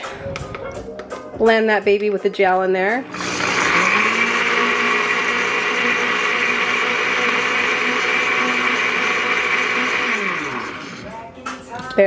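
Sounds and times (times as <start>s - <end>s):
blender motor whirring: 3.0s - 11.1s.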